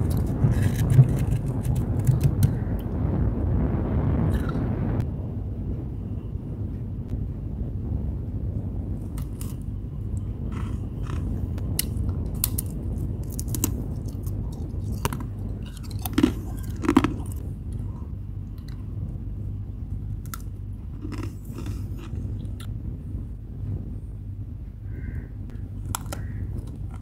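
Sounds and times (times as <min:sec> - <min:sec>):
frost crunching and crackling: 0:00.0 - 0:03.0, 0:09.0 - 0:17.9, 0:20.2 - 0:22.7, 0:25.5 - 0:27.0
steady low hum: 0:00.0 - 0:27.0.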